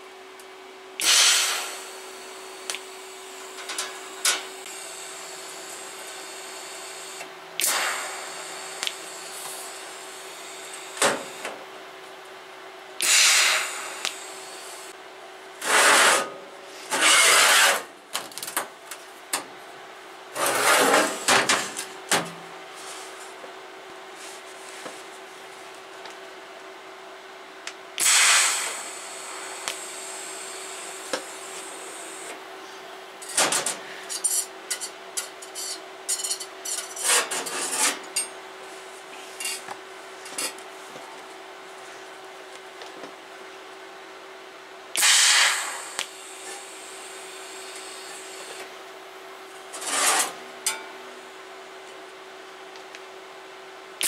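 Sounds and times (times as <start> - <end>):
welding machine hum: 0.4 - 12.4, 13.0 - 19.4, 27.6 - 32.5, 44.9 - 50.8
welding arc hissing: 1.0 - 11.5, 13.0 - 14.9, 28.0 - 32.3, 45.0 - 48.6.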